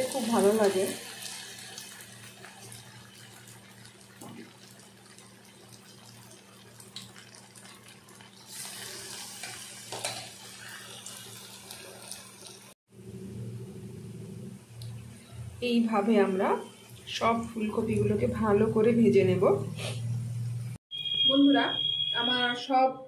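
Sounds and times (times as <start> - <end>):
batter frying in hot oil: 0.0 - 12.8
oil crackling: 0.0 - 12.8.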